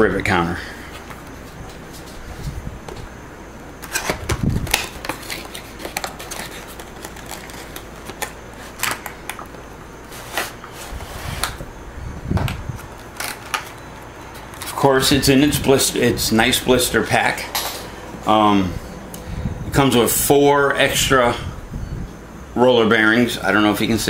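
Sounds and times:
plastic packaging crackling: 3.8s - 10.8s, 12.4s - 15.1s.

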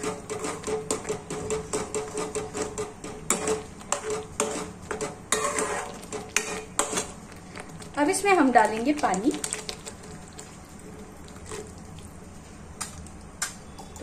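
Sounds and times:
metal spatula scraping a pot: 0.0s - 7.2s.

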